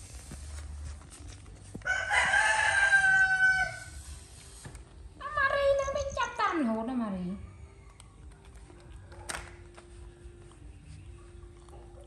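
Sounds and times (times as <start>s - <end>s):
rooster crowing: 1.8s - 4.0s.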